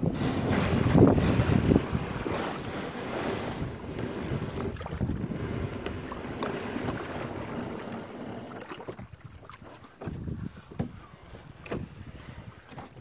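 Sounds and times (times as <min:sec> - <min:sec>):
wind buffeting microphone: 0:00.0 - 0:08.2, 0:08.9 - 0:13.0
water sloshing around kayak: 0:00.0 - 0:13.0
light knocks against hull: 0:08.7 - 0:13.0.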